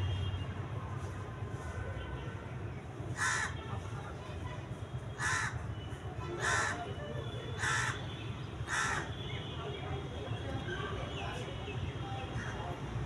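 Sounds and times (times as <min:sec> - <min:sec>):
crow cawing: 0:03.2 - 0:03.6, 0:05.2 - 0:05.6, 0:06.4 - 0:06.8, 0:07.6 - 0:08.0, 0:08.7 - 0:09.1.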